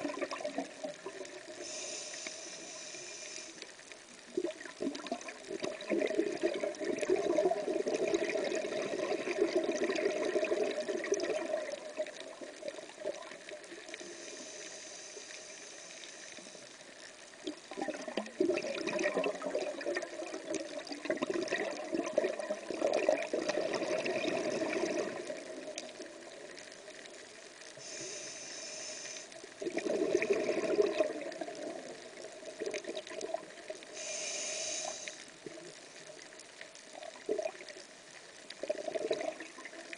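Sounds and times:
regulator hissing inhalations: 1.5s - 3.7s, 14.0s - 16.7s, 27.8s - 29.4s, 33.9s - 35.3s
bubbling exhalations underwater: 4.4s - 13.2s, 17.4s - 25.6s, 29.6s - 31.9s, 38.6s - 39.8s.

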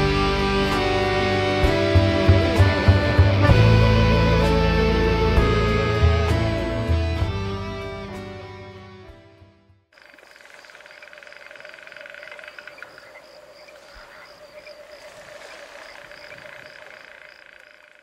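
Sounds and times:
guitar chord: 0.0s - 9.1s
frogs croaking: 9.9s - 18.0s
insects chirping: 9.9s - 18.0s.

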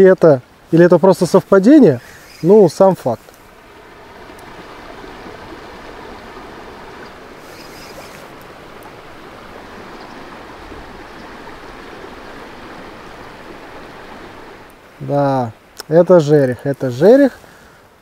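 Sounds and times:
river water rushing: 0.0s - 18.0s
short bright hiss: 7.4s - 8.3s.

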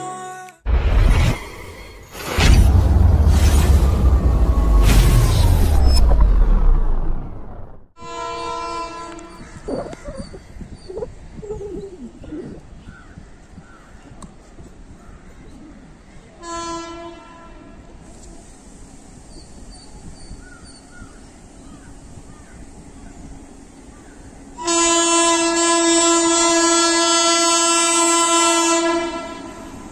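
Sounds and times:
train horn blasts: 8.0s - 9.4s, 16.4s - 18.1s, 24.6s - 29.9s
birds chirping: 9.2s - 16.4s.

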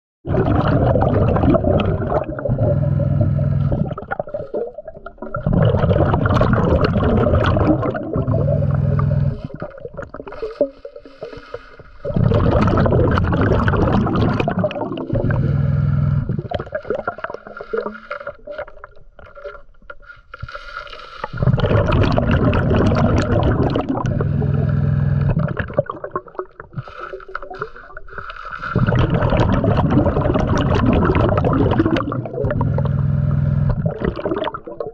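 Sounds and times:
scuba regulator bubbling exhalations: 0.2s - 34.9s
regulator inhalations: 10.3s - 12.2s.

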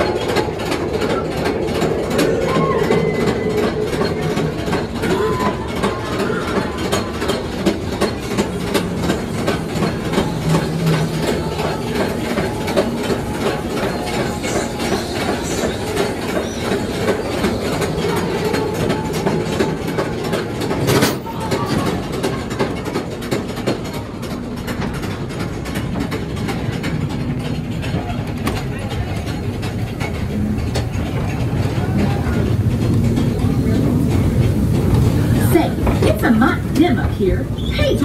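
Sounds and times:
ride cars rolling on track: 0.0s - 38.0s
wheels clicking over rail joints: 0.0s - 38.0s.

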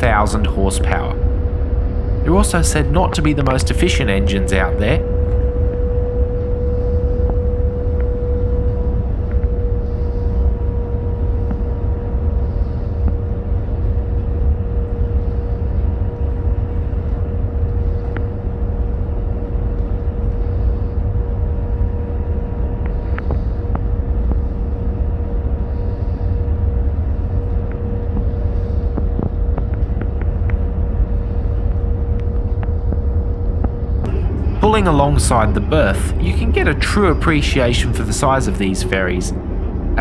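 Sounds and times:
ferry diesel engines rumbling: 34.0s - 40.0s.

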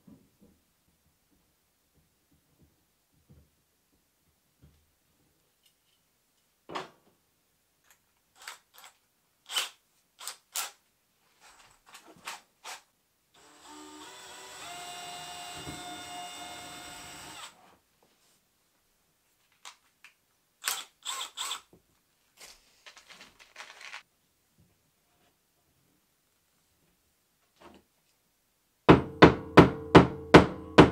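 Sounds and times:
power drill whine: 13.4s - 17.6s.

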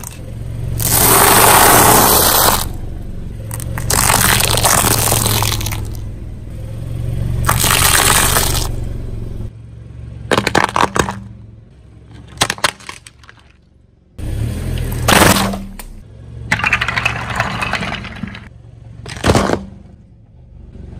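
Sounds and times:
dried fruit shells crunching: 3.5s - 6.0s.

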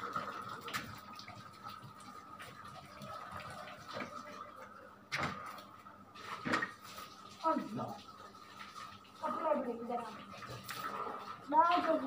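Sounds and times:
water splashing on brick floor: 5.5s - 12.0s.

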